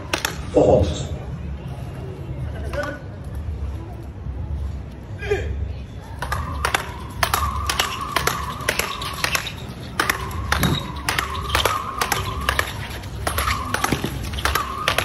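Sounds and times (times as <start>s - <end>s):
rackets striking ball: 6.2s - 15.0s.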